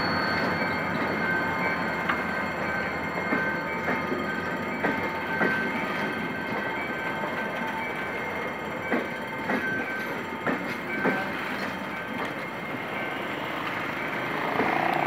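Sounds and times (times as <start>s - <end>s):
train rumble: 0.0s - 15.0s
train wheels knocking on rail joints: 2.0s - 6.7s, 8.8s - 15.0s.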